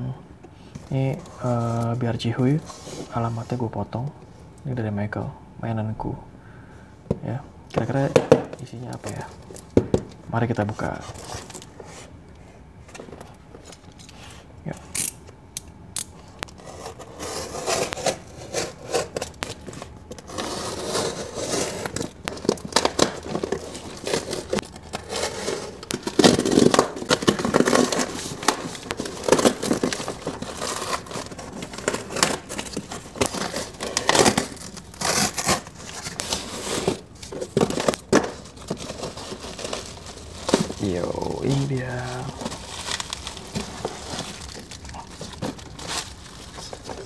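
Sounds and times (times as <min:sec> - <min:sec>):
cardboard tearing and crinkling: 0:16.5 - 0:47.0.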